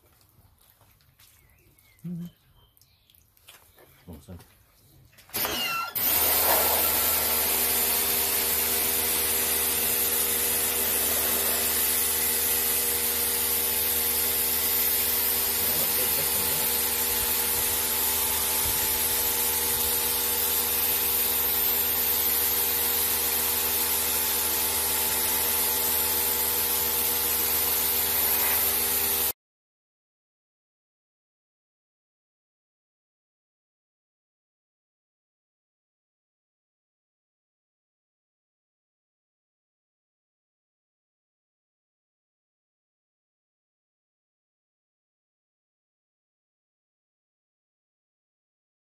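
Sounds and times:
pressure washer spraying concrete: 5.4s - 29.4s.

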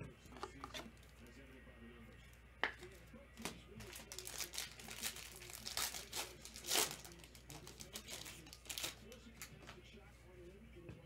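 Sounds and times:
foil wrappers crinkling and tearing: 2.8s - 9.5s.

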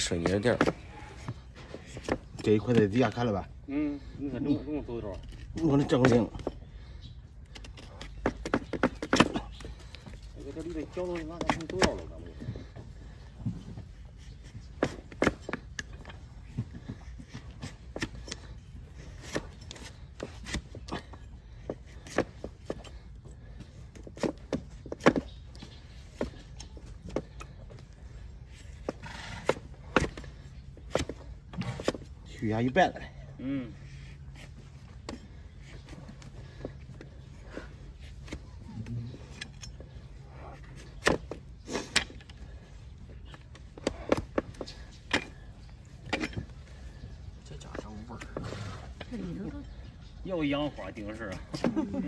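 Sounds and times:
hoof knife cutting hoof horn: 17.3s - 21.2s, 28.6s - 32.2s.

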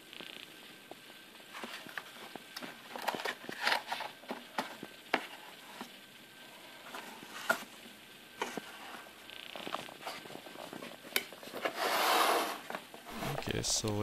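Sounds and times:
cardboard box rustling and scraping: 10.0s - 13.6s.

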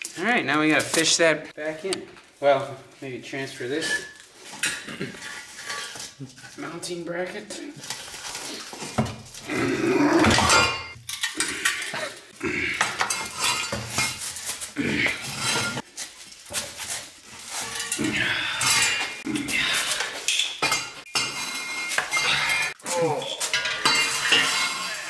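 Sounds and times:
metal parts clanking: 12.9s - 25.0s.

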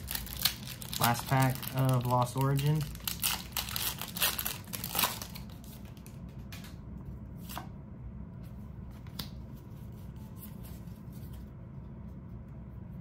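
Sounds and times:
foil wrapper crinkling and tearing: 0.0s - 6.1s
cards being handled: 8.9s - 11.5s.

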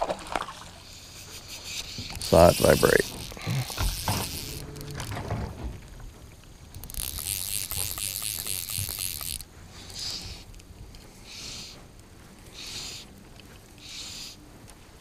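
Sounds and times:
fly reel ratchet buzzing: 1.2s - 5.2s, 6.7s - 10.3s.

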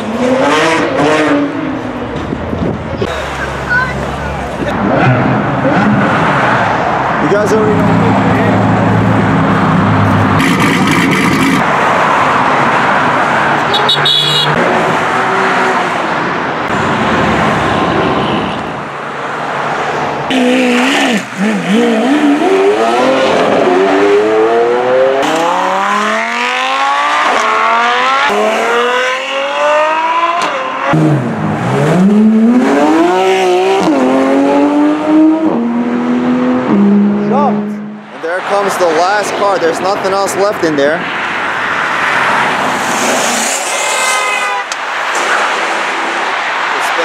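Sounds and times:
engines revving through gears: 0.0s - 1.7s, 4.7s - 6.6s, 8.9s - 11.7s, 20.3s - 38.9s
sports cars passing: 0.0s - 47.0s.

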